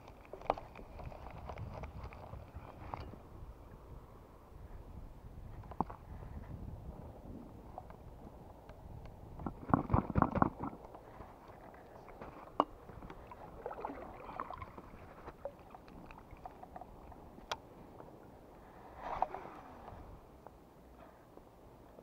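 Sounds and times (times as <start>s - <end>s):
low wind: 0.0s - 22.0s
water noise: 6.8s - 20.4s.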